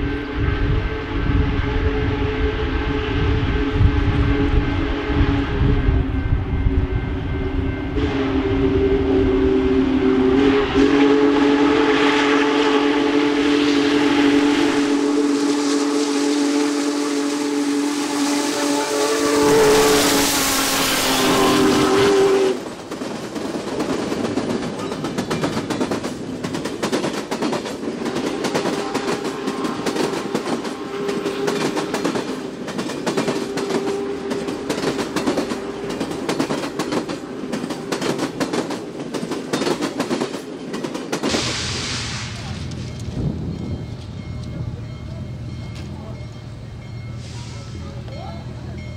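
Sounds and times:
steam locomotive whistle: 0.0s - 22.7s, 28.0s - 32.6s, 33.2s - 38.0s
rush of steam and running gear: 8.0s - 43.2s
train wheels clattering over rails: 21.8s - 46.0s.

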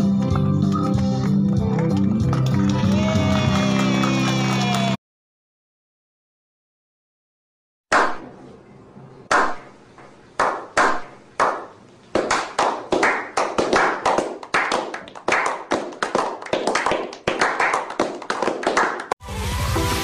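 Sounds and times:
people clapping: 0.0s - 5.0s, 10.4s - 19.2s.

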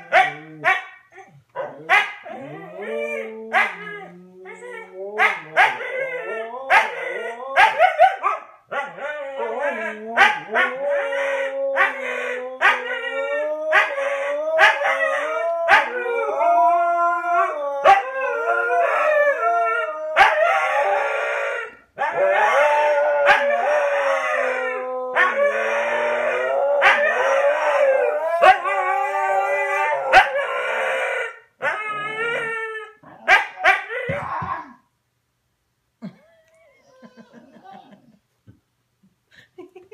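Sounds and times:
dogs barking and yipping: 0.0s - 2.5s, 5.2s - 10.9s, 33.2s - 34.4s
dogs howling: 0.0s - 8.2s, 8.8s - 34.8s, 36.7s - 38.0s.

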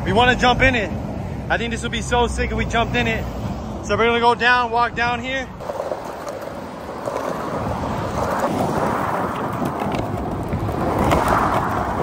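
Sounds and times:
freeway traffic: 0.0s - 12.0s
wind on microphone: 7.2s - 12.0s.

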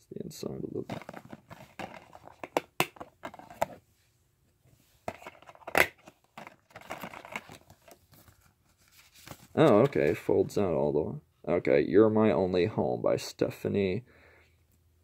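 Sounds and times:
paper rustling: 5.1s - 10.3s.

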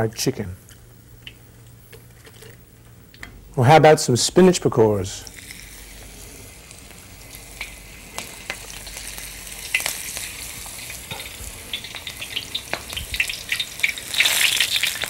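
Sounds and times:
deep-frying sizzle with crackling pops: 0.7s - 2.0s, 5.2s - 15.0s.

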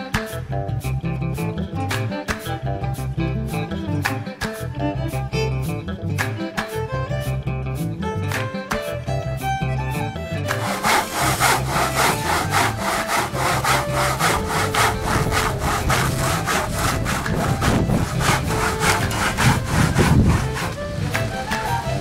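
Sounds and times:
rhythmic scraping strokes: 10.4s - 22.0s.

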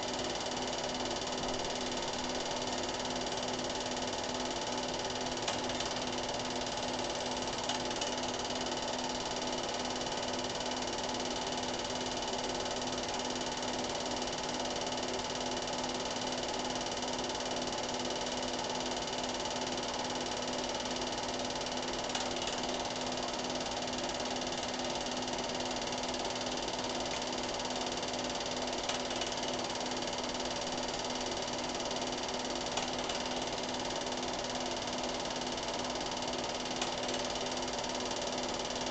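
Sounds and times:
film projector whirring: 0.0s - 38.9s
faint projector clicks: 5.4s - 6.1s, 22.0s - 23.5s, 28.7s - 29.5s, 32.6s - 33.5s, 36.6s - 37.5s.

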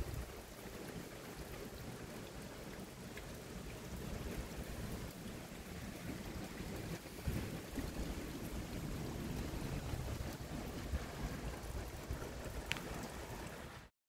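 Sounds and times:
running water hiss: 0.0s - 13.9s
small drips: 11.6s - 13.6s.

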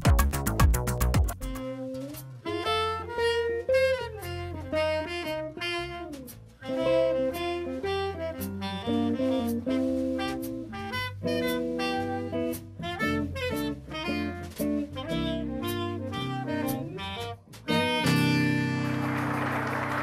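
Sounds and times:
low bass line: 0.0s - 18.7s
saxophone melody: 1.2s - 20.0s.

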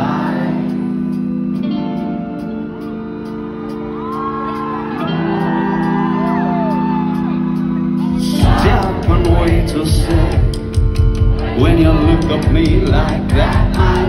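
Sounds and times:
held keyboard chords: 0.0s - 14.0s
fans shouting and whooping: 3.6s - 9.0s
loud drums: 8.4s - 14.0s.

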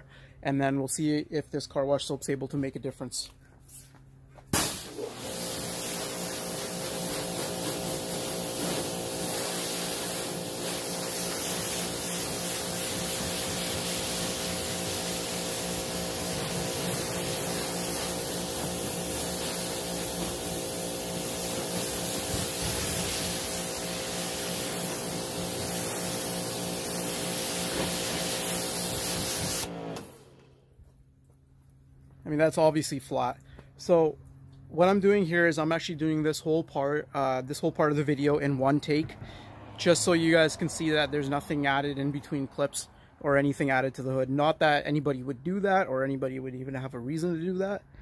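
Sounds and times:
hose water spraying hiss: 4.5s - 29.8s.

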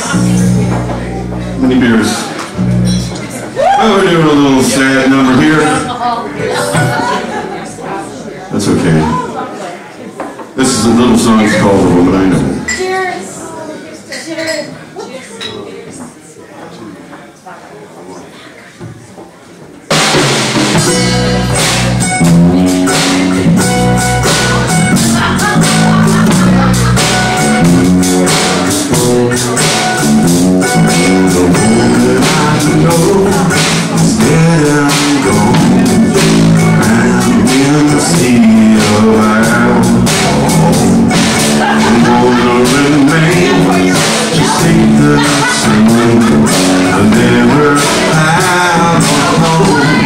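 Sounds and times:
live band playing slow song: 0.0s - 9.5s, 19.8s - 50.0s
man singing into microphone: 3.6s - 7.2s, 28.1s - 50.0s.

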